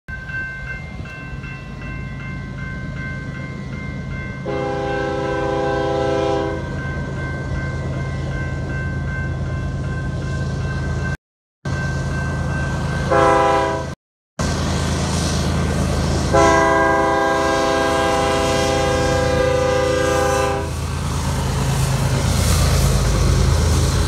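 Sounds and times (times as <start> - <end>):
crossing bell ringing: 0.1 - 13.8
locomotive air horn: 4.4 - 6.7, 13.1 - 14.0, 16.3 - 20.8.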